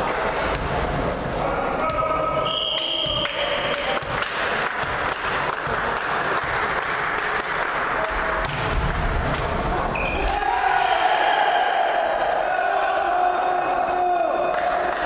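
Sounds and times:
echoing hall noise: 0:00.0 - 0:15.0
referee's whistle blast: 0:02.1 - 0:03.2.

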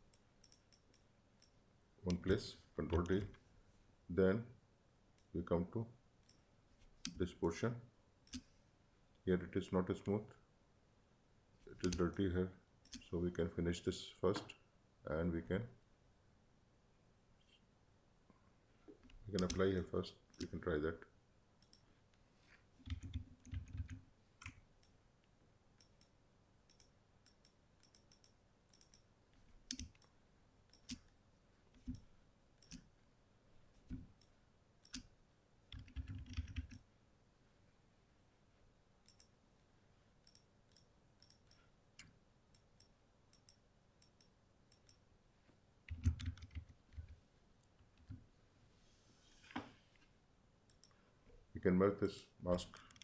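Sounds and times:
mouse and keyboard clicks: 0:11.8 - 0:12.2, 0:19.0 - 0:20.6, 0:32.6 - 0:32.9.

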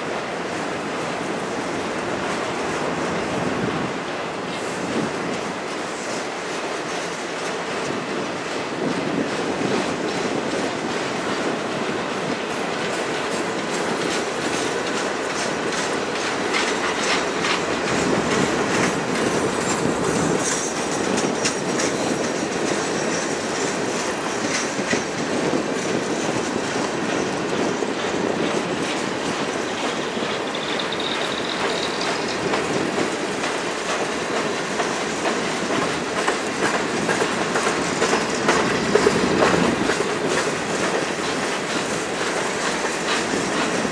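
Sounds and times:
freight train wheels clicking on rails: 0:00.0 - 0:43.9
rising squeal: 0:30.1 - 0:32.4.

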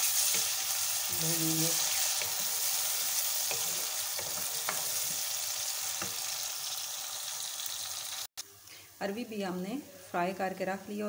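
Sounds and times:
onions sizzling in hot oil: 0:00.0 - 0:08.4.

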